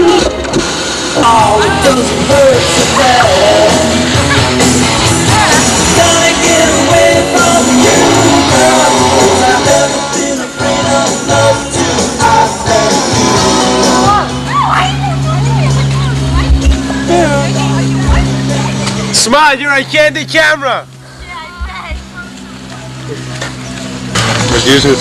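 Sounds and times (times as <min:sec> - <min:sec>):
music with singing voice: 0:00.0 - 0:19.0.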